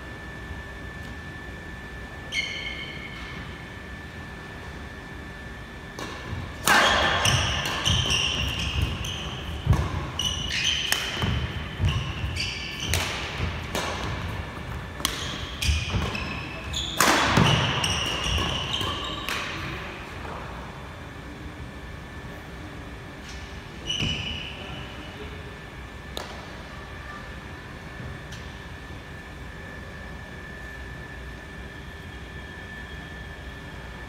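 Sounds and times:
racket striking shuttlecock: 0:06.0 - 0:16.2, 0:16.9 - 0:19.5.

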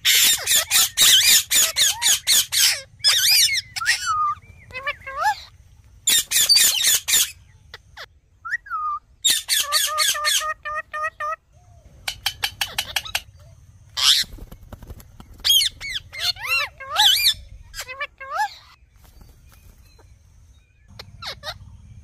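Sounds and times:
parakeets squawking and chattering: 0:00.0 - 0:22.0
whistled bird calls: 0:00.0 - 0:22.0.

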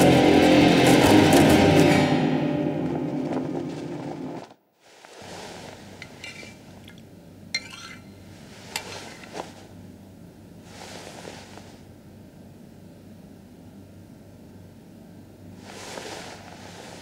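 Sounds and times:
spoon clinking against bowl: 0:07.6 - 0:08.2.

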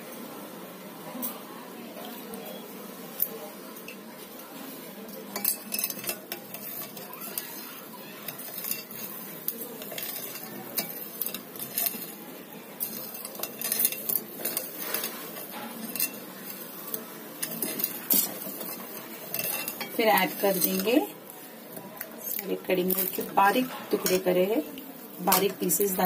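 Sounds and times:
spoon stirring in glass bowl: 0:05.3 - 0:12.2, 0:12.8 - 0:24.4
spoon clinking against bowl: 0:05.4 - 0:07.6, 0:17.4 - 0:20.9.

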